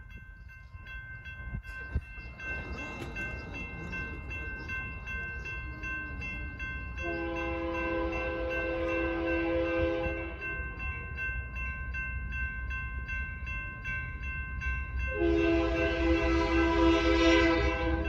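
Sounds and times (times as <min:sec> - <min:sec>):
railroad crossing bell ringing: 0:00.0 - 0:18.0
train horn long blast: 0:07.0 - 0:10.4, 0:15.1 - 0:18.0.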